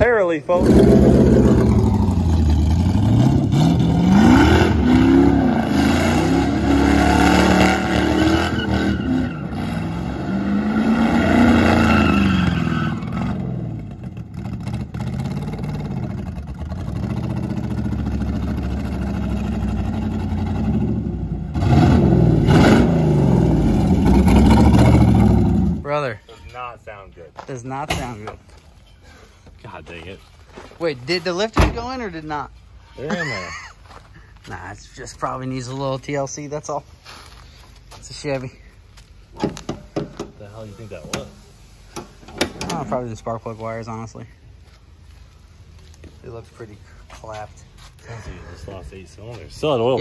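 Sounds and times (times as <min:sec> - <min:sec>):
race car engine revving: 0:00.6 - 0:25.8.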